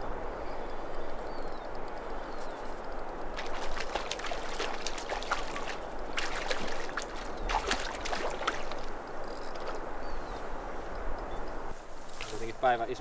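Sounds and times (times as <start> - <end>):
river current rushing: 3.2 - 10.0
fish splashing at water surface: 3.4 - 9.8.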